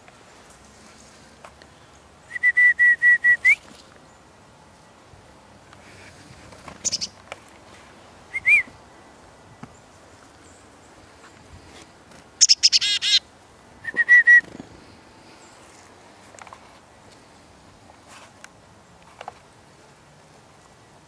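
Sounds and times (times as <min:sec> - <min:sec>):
songbirds calling: 0:03.5 - 0:18.0.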